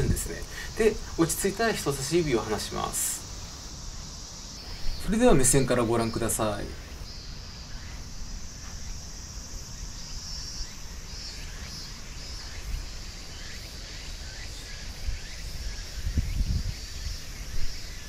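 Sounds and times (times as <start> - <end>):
wind rumble on microphone: 0.0 - 0.5, 14.9 - 18.0
insects chirring: 0.0 - 18.0.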